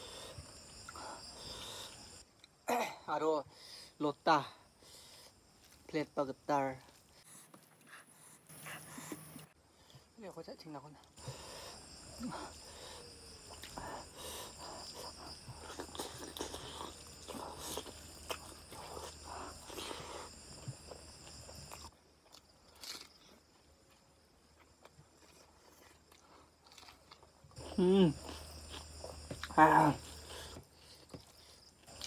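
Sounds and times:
wet chewing: 0:11.0 - 0:32.0.

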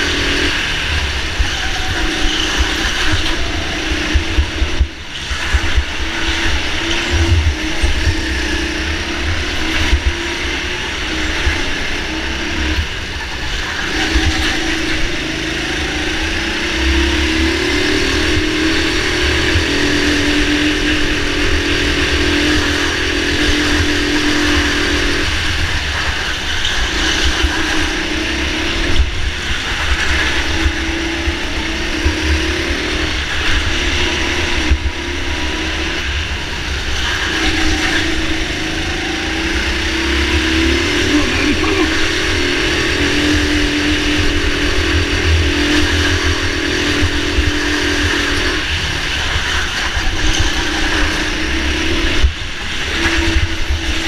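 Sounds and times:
go-kart motor accelerating: 0:00.0 - 0:54.0
wind rumble on microphone: 0:00.0 - 0:54.0.

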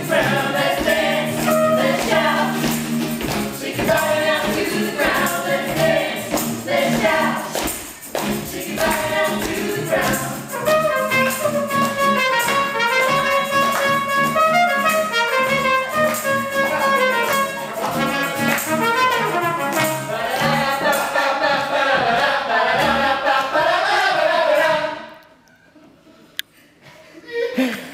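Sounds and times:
upright bass: 0:00.0 - 0:07.6, 0:08.2 - 0:21.0
people singing: 0:00.0 - 0:14.0, 0:16.7 - 0:25.3
acoustic guitar: 0:00.0 - 0:22.2.

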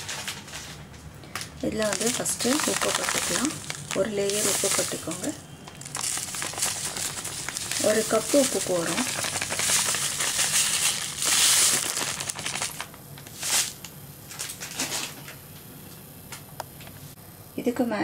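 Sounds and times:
salt pouring into a pot: 0:05.8 - 0:12.8.

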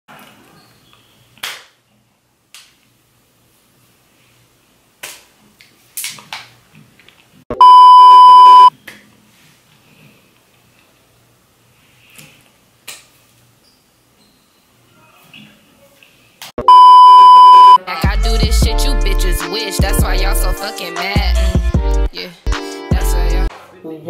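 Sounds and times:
censor bleep: 0:07.6 - 0:08.7, 0:16.6 - 0:17.8.

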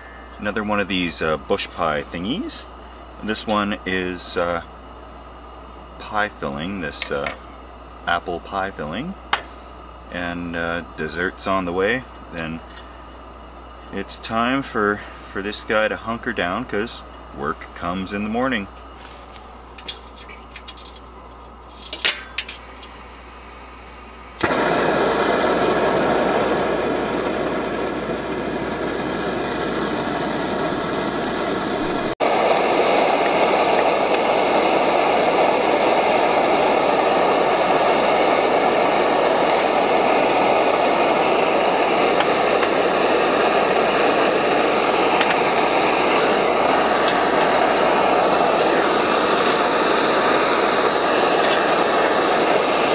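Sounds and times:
camp stove burner hissing: 0:00.0 - 0:52.9
igniter clicks: 0:03.3 - 0:03.8, 0:24.4 - 0:24.7.

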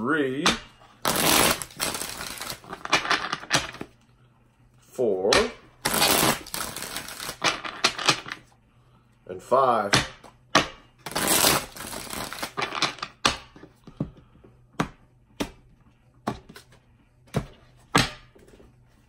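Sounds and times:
cards shuffling: 0:01.0 - 0:03.9, 0:05.8 - 0:08.4, 0:11.1 - 0:13.1.

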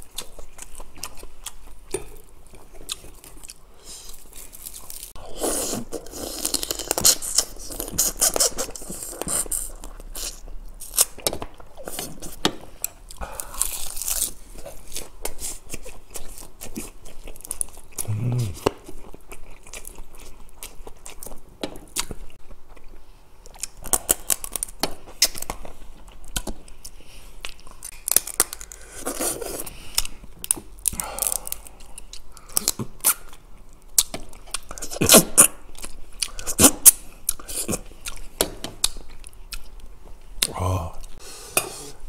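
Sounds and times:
chewing crab: 0:00.0 - 0:41.2
mouth sounds: 0:18.0 - 0:18.8, 0:40.4 - 0:41.9.

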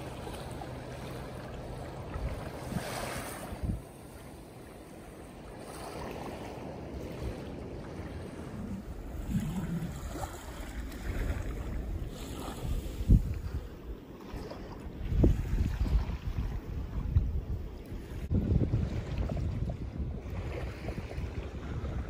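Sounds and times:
small waves washing onto beach: 0:00.0 - 0:22.0
wind buffeting microphone: 0:01.4 - 0:04.2, 0:05.6 - 0:22.0.

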